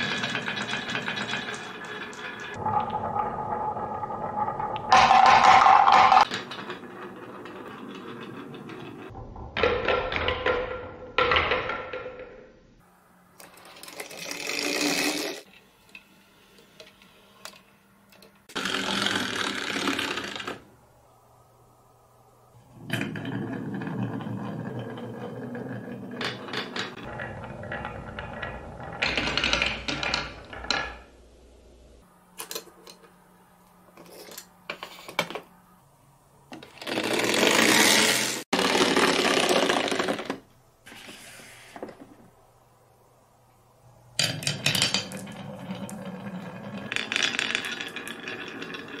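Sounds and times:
marbles rolling on wooden track: 0.0s - 12.2s, 13.4s - 15.5s, 18.4s - 20.7s, 22.7s - 31.1s, 36.6s - 42.1s, 44.2s - 49.0s.

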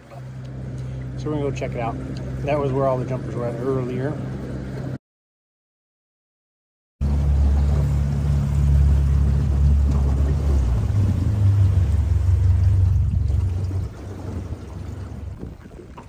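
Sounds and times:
outboard motor running: 0.0s - 5.0s, 7.0s - 16.0s.

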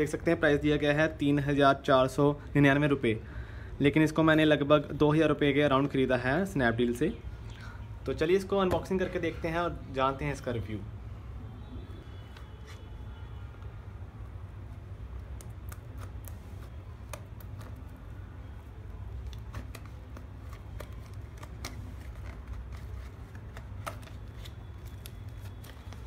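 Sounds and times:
scissors snipping paperboard: 15.1s - 18.0s.

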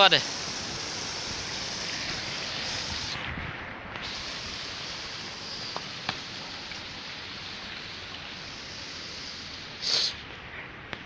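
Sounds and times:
water running over ice: 4.1s - 10.2s.

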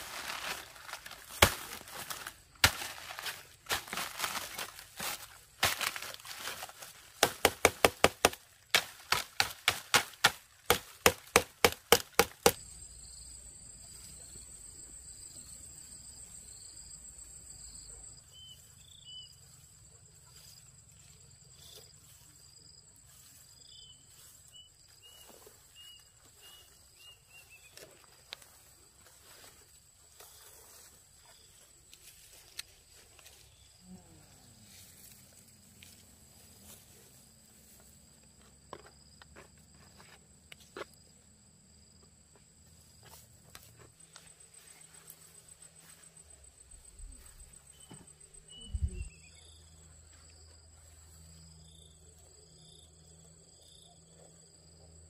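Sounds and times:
sharp chopping strikes: 1.2s - 6.6s, 7.2s - 12.6s.

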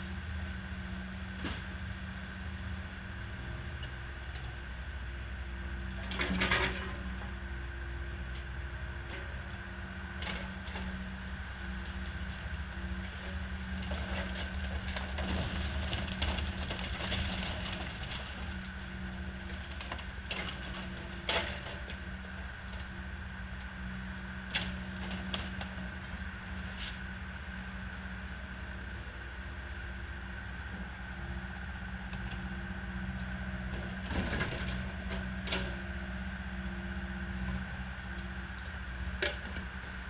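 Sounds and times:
excavator diesel engine running: 0.0s - 40.0s
siding clattering and crunching: 11.8s - 22.9s, 33.6s - 35.8s.

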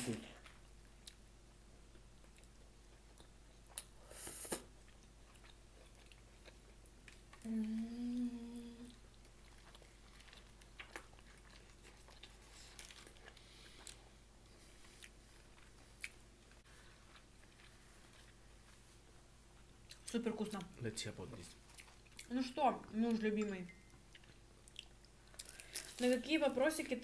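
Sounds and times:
closed-mouth hum of enjoyment: 7.3s - 9.1s.

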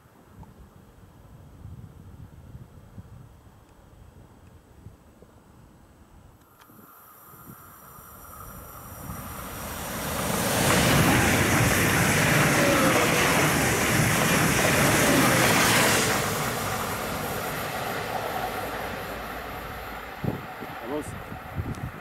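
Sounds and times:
electric train passing: 6.5s - 22.0s.

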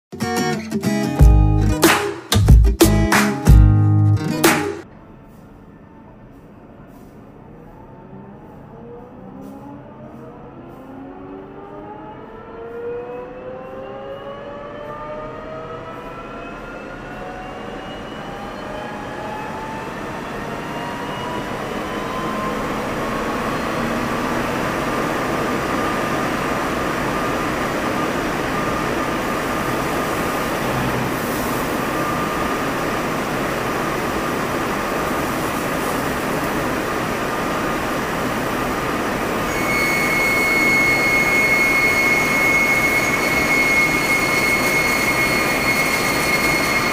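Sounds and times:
lathe spindle whine: 15.8s - 46.9s.

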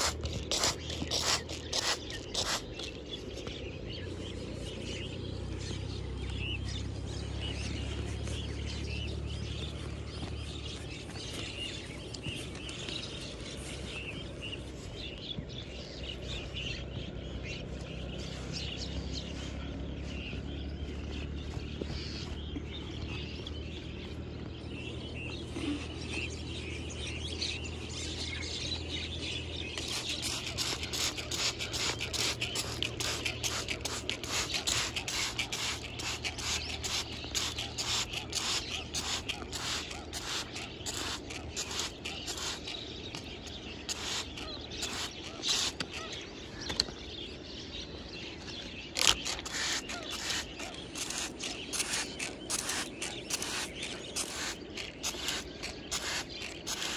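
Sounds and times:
spray bottle squirts: 0.0s - 3.0s, 29.8s - 43.3s, 43.9s - 46.0s, 49.0s - 56.9s
soil being scraped: 0.0s - 3.5s, 29.6s - 46.2s, 49.0s - 56.9s
birds chirping: 0.0s - 56.9s
steady low rumble: 0.0s - 56.9s.

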